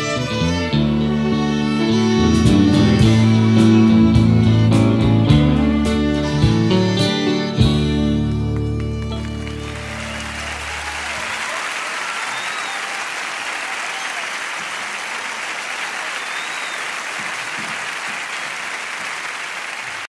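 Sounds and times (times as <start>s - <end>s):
band final chord: 0.9s - 10.9s
audience applauding: 8.2s - 20.0s
crowd whoops and whistles: 9.2s - 18.6s.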